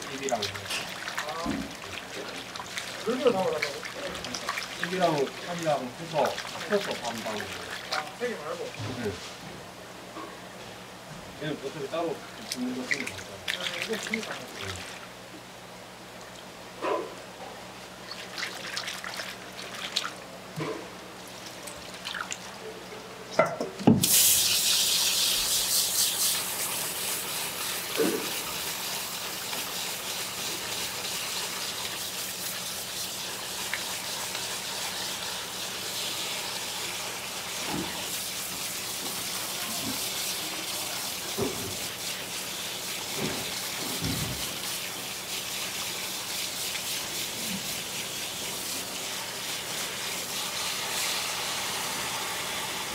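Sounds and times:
water splashing in a bowl: 0:00.0 - 0:08.8, 0:12.4 - 0:15.1, 0:18.0 - 0:22.6
tap water running: 0:00.0 - 0:09.2, 0:11.4 - 0:16.6, 0:18.0 - 0:52.9.

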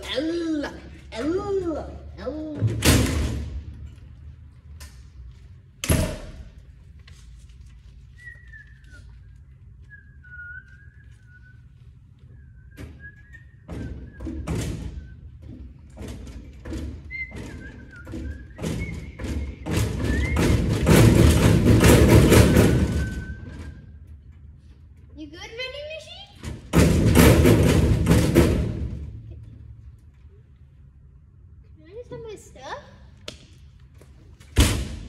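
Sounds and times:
door thudding shut: 0:02.6 - 0:03.6
person whistling a tune: 0:08.2 - 0:15.2, 0:17.0 - 0:20.8, 0:22.9 - 0:23.9.

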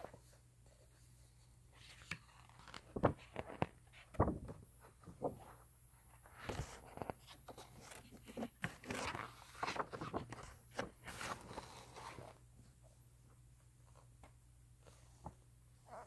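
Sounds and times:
book page turning: 0:01.8 - 0:05.5, 0:06.3 - 0:12.4.

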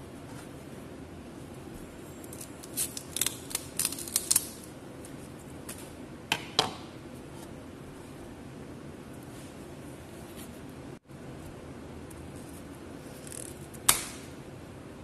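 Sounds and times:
cauliflower snapping and cracking: 0:02.4 - 0:04.6.

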